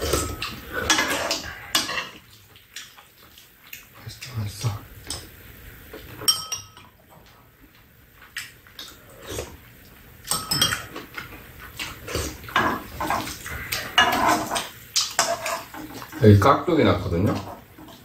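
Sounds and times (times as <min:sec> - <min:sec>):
metal spoons clinking and scraping: 0:06.2 - 0:06.9, 0:10.3 - 0:10.9
chewing and lip-smacking: 0:07.6 - 0:10.0, 0:10.8 - 0:12.6.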